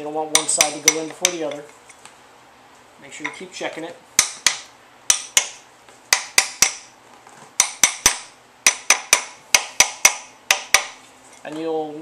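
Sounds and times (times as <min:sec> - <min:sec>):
hammer tapping metal tool: 0:00.3 - 0:01.8, 0:04.2 - 0:06.9, 0:07.6 - 0:11.0.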